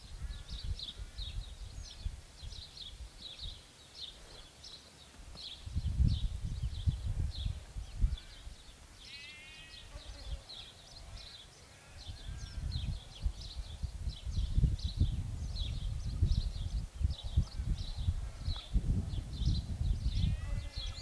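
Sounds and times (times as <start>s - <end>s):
wind rumbling on microphone: 0.0s - 3.6s, 5.2s - 8.7s, 12.0s - 21.0s
small birds chirping: 0.0s - 21.0s
sheep bleating: 9.1s - 10.3s, 20.2s - 21.0s.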